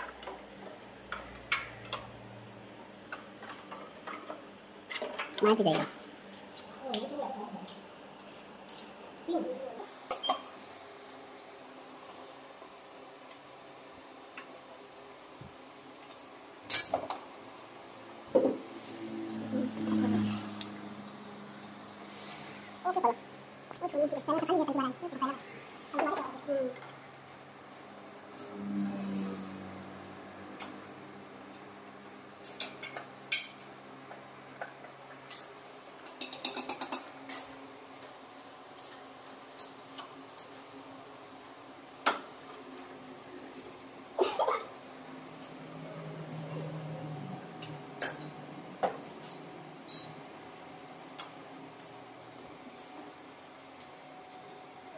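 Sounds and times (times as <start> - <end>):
metal tools clinking: 49.2 - 50.2.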